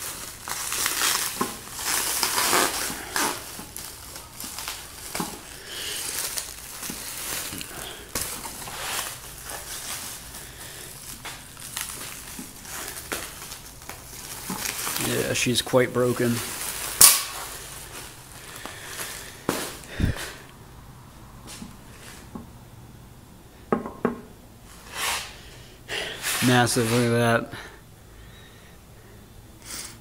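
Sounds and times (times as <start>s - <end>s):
plastic wrapping crinkling: 0.0s - 20.4s.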